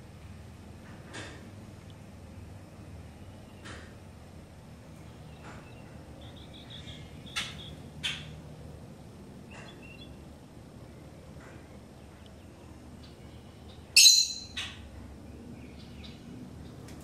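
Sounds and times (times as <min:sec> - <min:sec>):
lovebirds chirping: 0:04.9 - 0:08.4, 0:09.4 - 0:10.3, 0:10.9 - 0:16.9.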